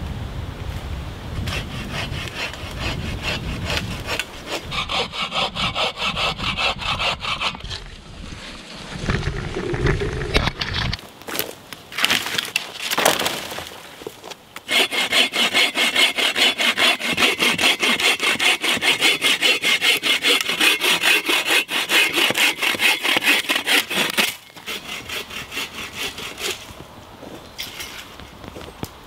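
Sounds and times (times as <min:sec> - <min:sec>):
hand saw cutting branch: 0:01.4 - 0:08.0, 0:14.6 - 0:26.8.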